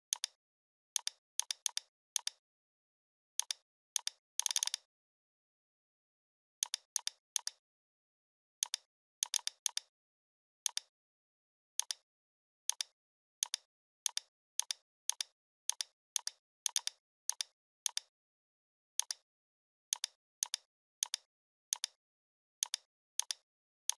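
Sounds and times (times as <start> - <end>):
computer mouse clicks: 0.1 - 0.4, 1.0 - 2.4, 3.4 - 4.9, 6.6 - 7.6, 8.6 - 9.9, 10.7 - 10.9, 11.8 - 12.0, 12.7 - 18.1, 19.0 - 19.2, 19.9 - 22.0, 22.6 - 23.9.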